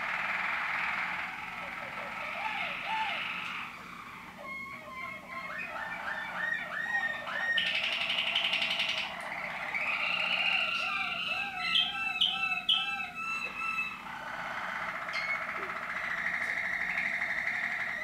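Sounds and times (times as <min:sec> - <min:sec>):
canaries singing: 0:00.0 - 0:18.0.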